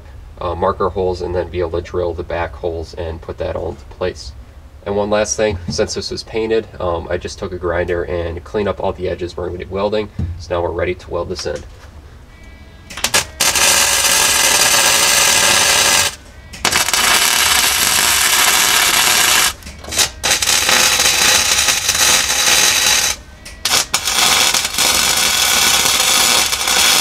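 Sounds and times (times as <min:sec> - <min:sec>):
crackle of welding arc: 0:12.4 - 0:27.0.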